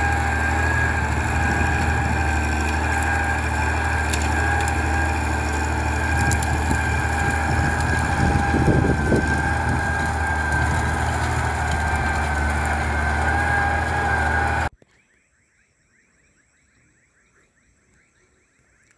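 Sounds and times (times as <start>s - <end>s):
steady whine: 0.0s - 14.7s
tractor diesel engine under load: 0.0s - 14.7s.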